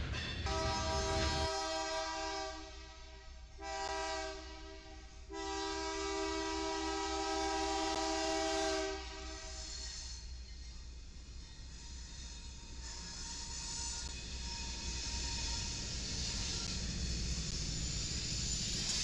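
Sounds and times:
locomotive air horn blasts: 0.5 - 9.7.

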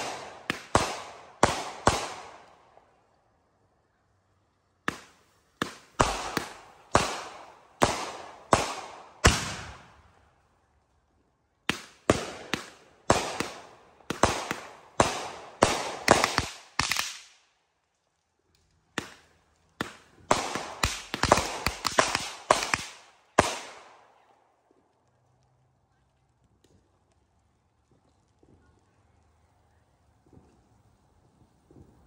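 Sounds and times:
fireworks bangs with echo: 0.0 - 2.6, 4.8 - 10.1, 11.7 - 17.3, 19.0 - 24.0.

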